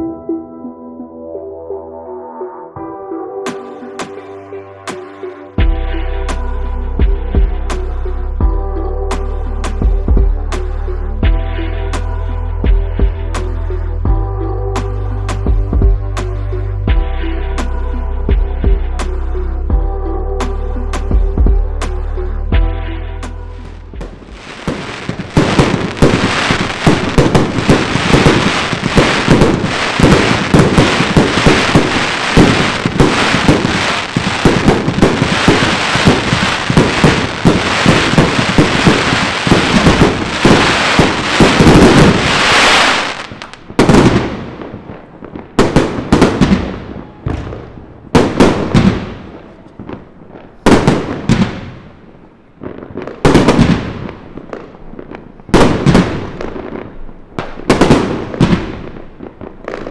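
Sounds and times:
fireworks bangs and crackling: 0:23.6 - 0:59.9.

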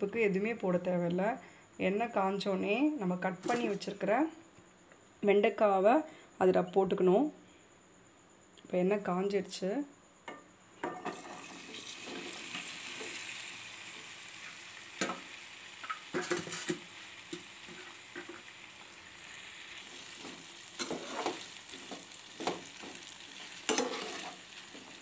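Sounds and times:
okra sizzling in hot oil: 0:10.8 - 0:25.0
metal ladle scraping a pan: 0:15.8 - 0:16.8, 0:19.8 - 0:25.0.

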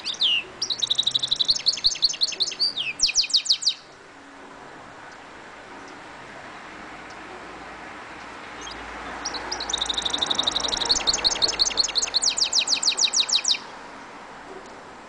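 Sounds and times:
bird singing rapid high notes: 0:00.0 - 0:04.0, 0:08.4 - 0:13.7.

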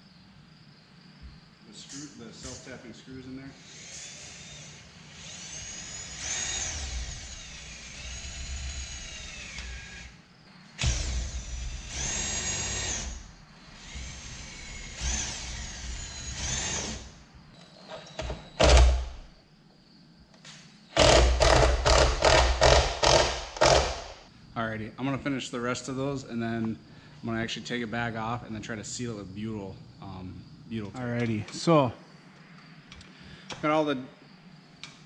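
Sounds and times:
cordless drill whining: 0:03.6 - 0:10.2, 0:10.8 - 0:17.2, 0:21.0 - 0:24.1
loud clattering pulses: 0:21.0 - 0:24.2.

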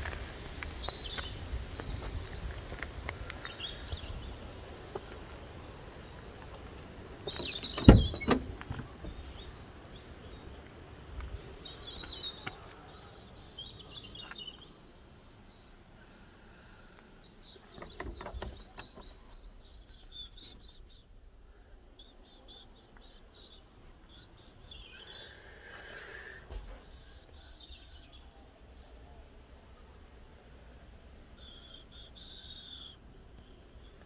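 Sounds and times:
small birds chirping: 0:00.3 - 0:34.0
loud thump: 0:07.8 - 0:08.5.

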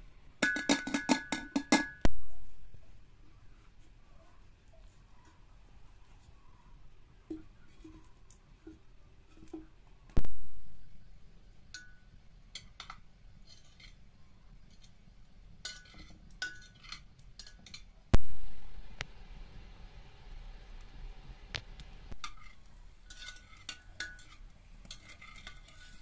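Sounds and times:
ceramic pot clinking and scraping: 0:15.6 - 0:17.9, 0:22.1 - 0:26.0.

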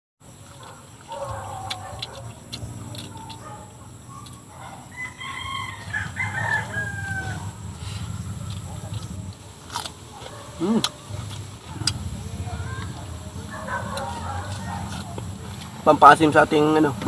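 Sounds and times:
chickens clucking: 0:00.4 - 0:15.8
rooster crowing: 0:01.1 - 0:09.1, 0:12.4 - 0:15.1.

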